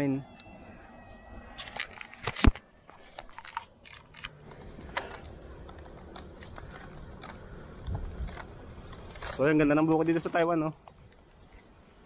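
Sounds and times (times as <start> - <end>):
camera handling clicks and knocks: 1.6 - 9.4
bike rolling rumble: 3.0 - 11.8.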